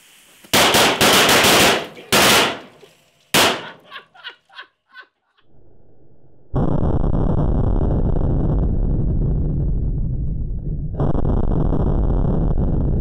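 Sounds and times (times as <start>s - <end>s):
flash powder bangs: 0.4s - 3.9s.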